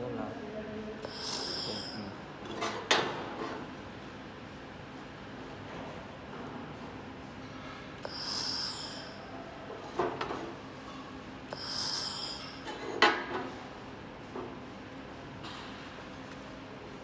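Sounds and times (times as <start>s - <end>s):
low machine hum: 0.0s - 17.0s
laser welder sizzling hiss: 1.0s - 2.1s, 8.0s - 9.2s, 11.5s - 12.6s.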